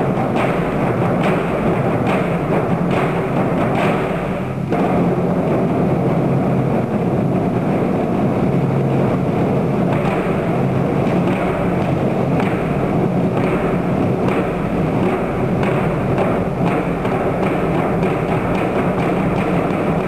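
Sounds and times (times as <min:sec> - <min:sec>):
drums in fast roll: 0:00.0 - 0:20.0.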